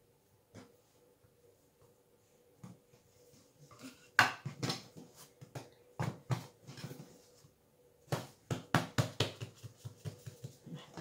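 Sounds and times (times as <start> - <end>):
hands slapping bread dough: 8.1 - 10.8.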